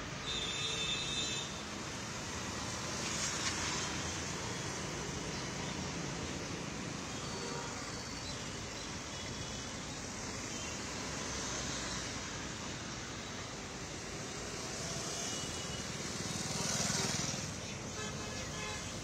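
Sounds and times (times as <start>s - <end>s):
road traffic: 0.0s - 19.0s
motorbike passing: 16.0s - 17.6s.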